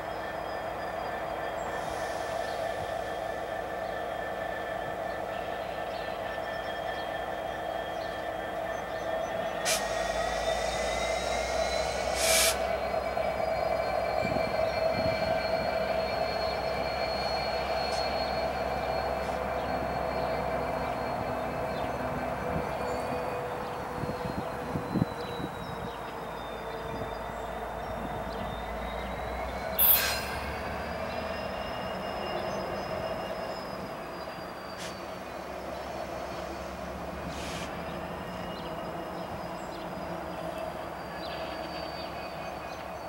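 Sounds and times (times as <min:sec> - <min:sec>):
diesel locomotive engine drone: 0:00.0 - 0:43.0
wheels squealing on rail: 0:00.0 - 0:43.0
short hiss: 0:09.7 - 0:11.1, 0:12.1 - 0:12.7, 0:29.8 - 0:30.5, 0:37.3 - 0:37.7.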